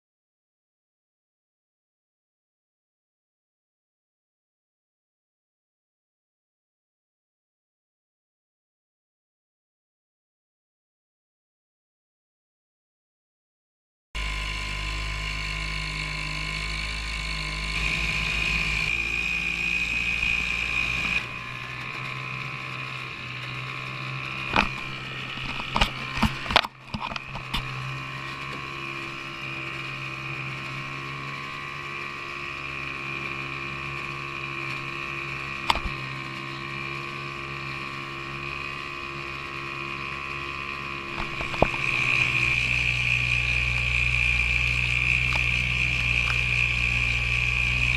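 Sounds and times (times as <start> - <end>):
outboard motor running: 14.2 - 47.9.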